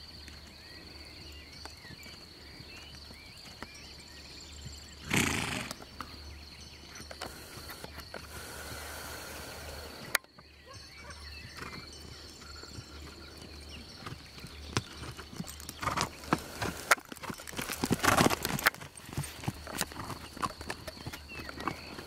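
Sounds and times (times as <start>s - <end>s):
horse hoofbeats on grass: 4.6s - 6.2s, 10.7s - 22.0s.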